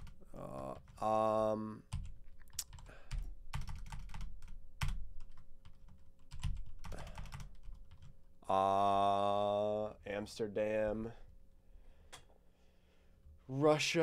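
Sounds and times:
keyboard typing: 0:01.9 - 0:08.1
man's drawn-out vocal sound: 0:08.5 - 0:10.0.

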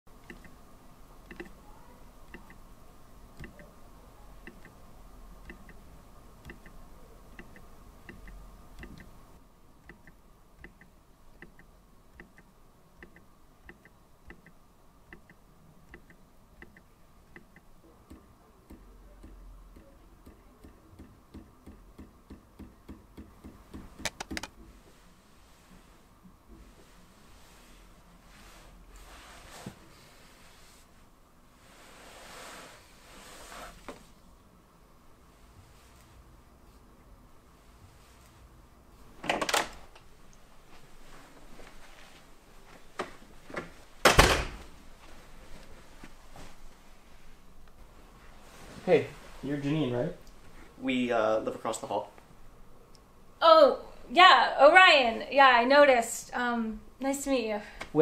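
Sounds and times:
faint ticking: 0:00.1 - 0:03.8, 0:04.4 - 0:24.8
sharp clicks: 0:00.2 - 0:00.6, 0:01.3 - 0:01.6, 0:02.3 - 0:02.6, 0:03.4 - 0:03.7, 0:04.4 - 0:04.8, 0:05.4 - 0:05.8, 0:06.4 - 0:09.2, 0:09.8 - 0:24.6.

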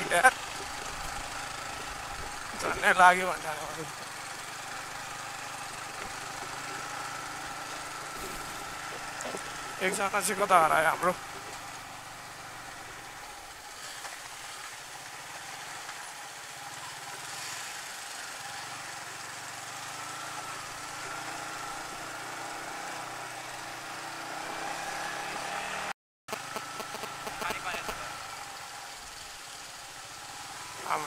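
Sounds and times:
faint engine whine: 0:00.0 - 0:31.0
motorcycle engine at low revs: 0:00.0 - 0:31.0
tyres on stones: 0:07.6 - 0:09.9.

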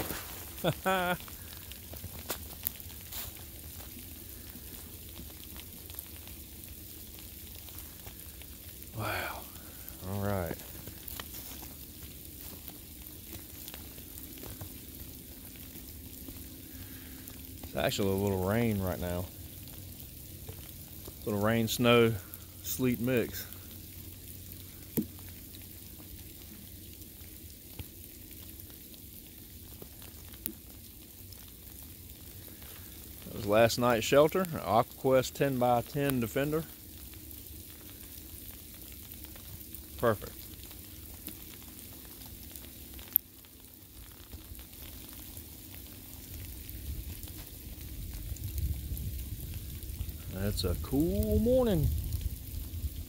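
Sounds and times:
rain snow and sleet falling: 0:00.0 - 0:53.0
low rumble on microphone: 0:45.3 - 0:53.0.

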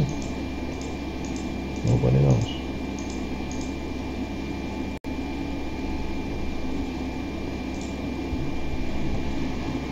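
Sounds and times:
fan-like hum with hiss: 0:00.0 - 0:09.9.

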